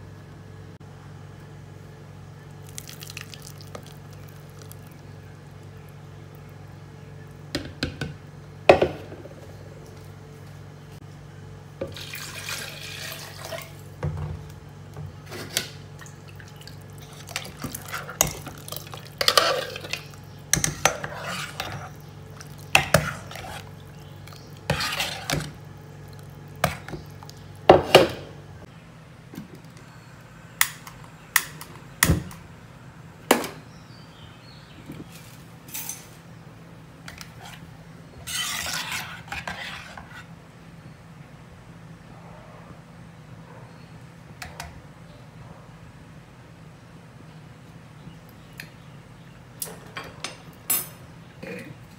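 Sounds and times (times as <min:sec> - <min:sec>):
ladle scraping pot: 0:17.0 - 0:25.6, 0:37.1 - 0:40.3.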